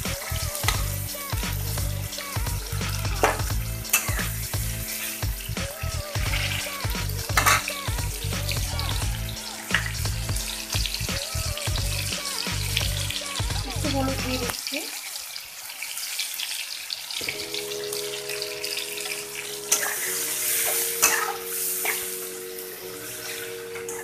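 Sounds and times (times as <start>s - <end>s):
onions sizzling in hot oil: 0.0s - 24.0s
metal spatula scraping: 0.2s - 7.9s, 19.6s - 24.0s.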